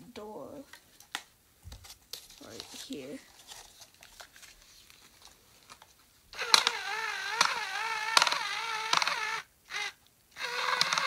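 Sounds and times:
small electric motor whining: 0:06.3 - 0:11.0
sharp mechanical clicks: 0:06.4 - 0:09.5, 0:10.4 - 0:11.0.

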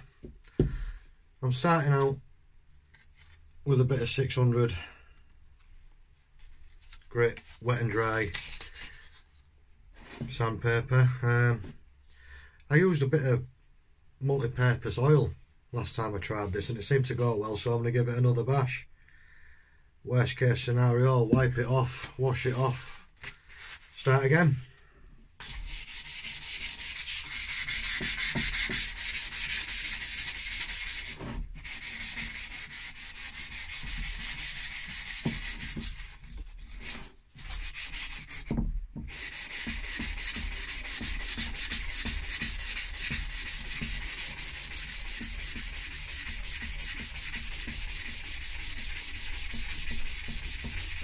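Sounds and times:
sandpaper rasping on steel: 0:25.4 - 0:51.0.

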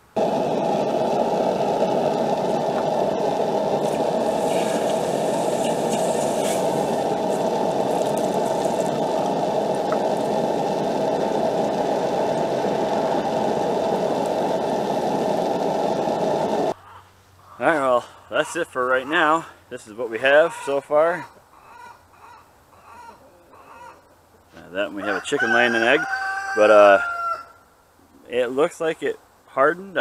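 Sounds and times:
hot blade sizzling in water: 0:00.0 - 0:16.7.

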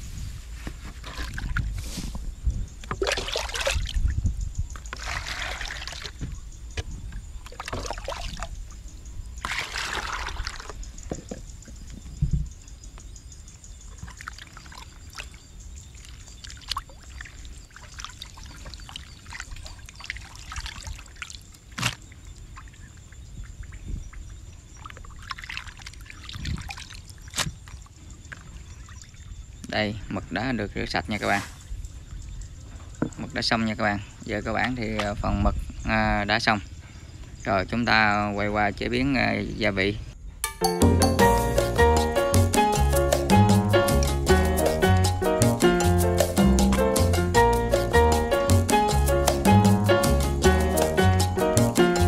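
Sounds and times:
water splashing in a plastic bowl: 0:01.0 - 0:01.8, 0:02.8 - 0:04.1, 0:04.8 - 0:06.4, 0:07.4 - 0:08.6, 0:09.4 - 0:11.4, 0:13.9 - 0:23.7, 0:24.8 - 0:29.2.

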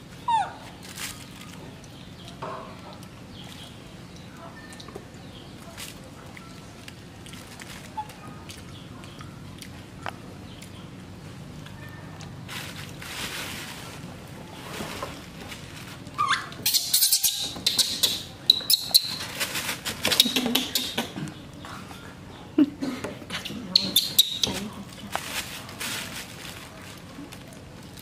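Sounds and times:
baby monkey squealing: 0:00.3 - 0:00.7, 0:16.2 - 0:19.3, 0:20.1 - 0:21.1, 0:23.4 - 0:24.7.

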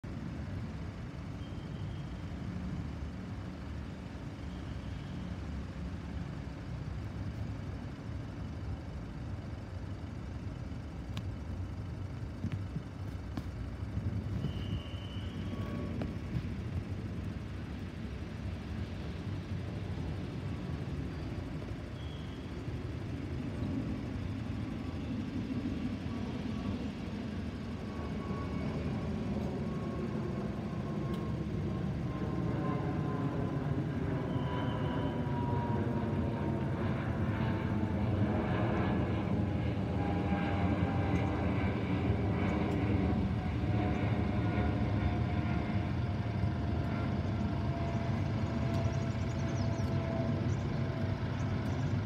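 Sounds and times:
jet engines rumbling: 0:00.1 - 0:52.0.

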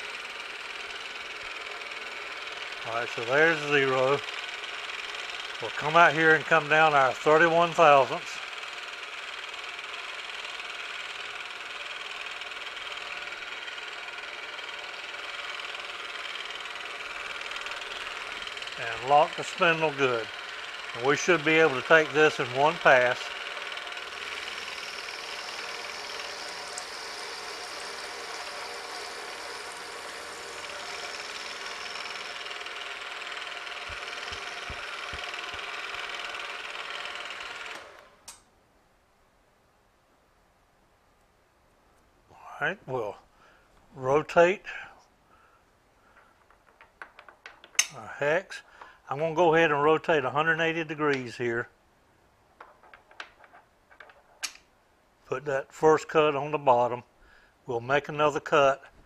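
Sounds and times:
milling machine spindle whine: 0:00.0 - 0:38.1.

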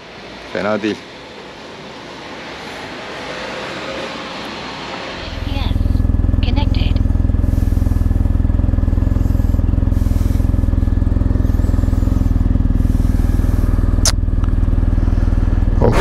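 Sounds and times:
motorcycle engine idling: 0:05.2 - 0:16.0.

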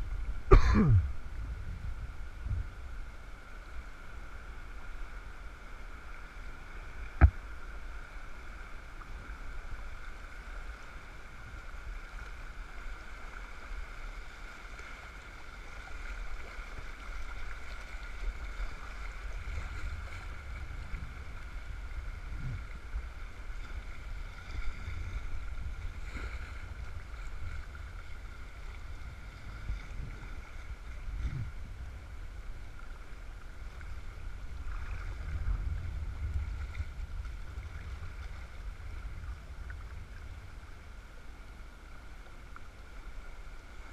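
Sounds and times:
rapid water rushing: 0:00.0 - 0:43.9
wind rumble on microphone: 0:00.0 - 0:43.9
soft thumps: 0:07.2 - 0:07.4.

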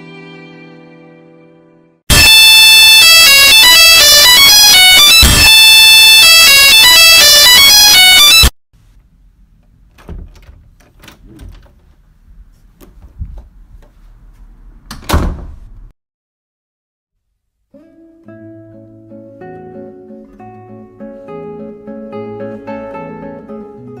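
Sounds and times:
harsh electronic doorbell notes: 0:02.1 - 0:08.5
knocks and clicks: 0:09.6 - 0:12.0.

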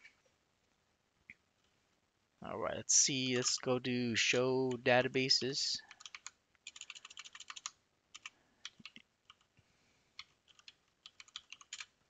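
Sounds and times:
faint keyboard typing: 0:03.2 - 0:04.9, 0:05.8 - 0:12.0.

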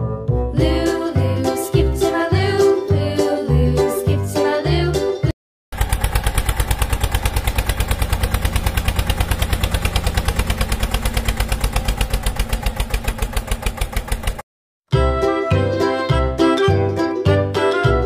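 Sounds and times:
tractor engine idling: 0:05.7 - 0:14.4.

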